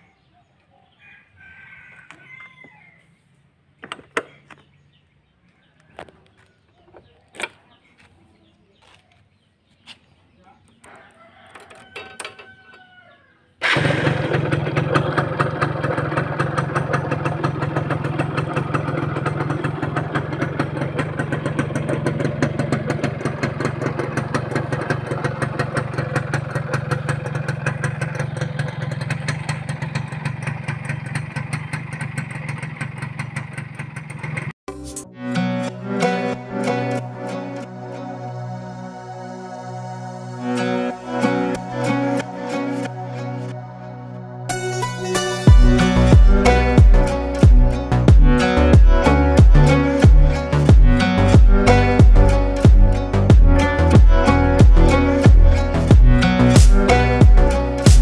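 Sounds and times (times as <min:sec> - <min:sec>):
rooster crowing: 0:01.0 - 0:03.2, 0:10.8 - 0:13.6
motorcycle engine starting and idling: 0:03.7 - 0:04.9, 0:13.6 - 0:34.6, 0:44.6 - 0:58.0.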